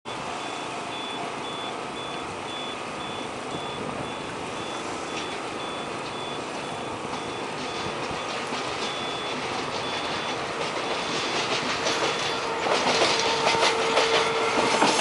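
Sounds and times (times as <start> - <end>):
electronic warning beeper: 0.1 - 11.3.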